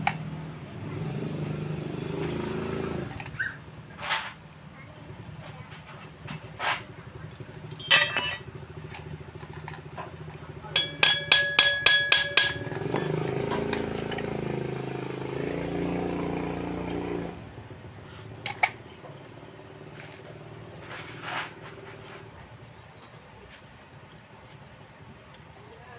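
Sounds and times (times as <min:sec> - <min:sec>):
motorcycle engine revving: 0:00.0 - 0:04.5, 0:05.1 - 0:11.4, 0:12.0 - 0:22.4
metal spanners clinking: 0:05.8 - 0:14.8.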